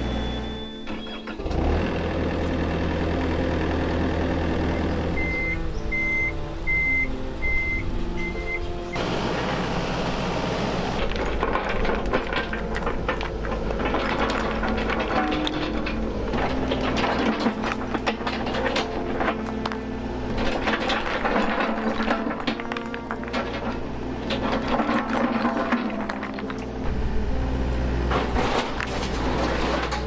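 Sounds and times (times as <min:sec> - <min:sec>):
travel alarm beeping: 0:00.0 - 0:01.3, 0:05.1 - 0:09.0
excavator engine running: 0:00.0 - 0:30.0
clattering knocks: 0:11.0 - 0:26.9, 0:28.1 - 0:30.0.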